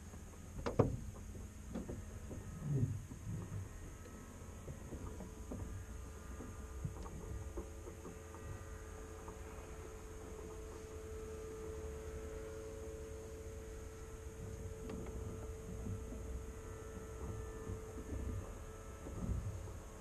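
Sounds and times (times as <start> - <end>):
steady hum: 0.0 - 20.0.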